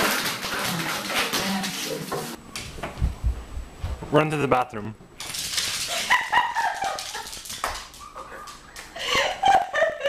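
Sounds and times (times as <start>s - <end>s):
dog claws clicking on wooden floor: 5.2s - 8.9s.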